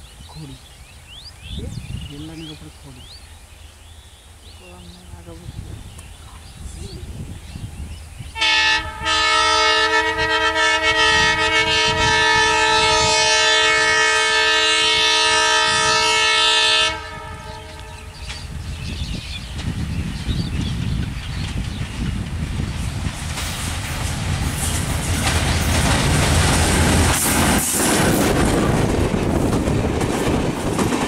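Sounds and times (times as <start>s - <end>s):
train engine and wheels rumbling: 0.0s - 31.0s
locomotive air horn: 8.4s - 18.2s.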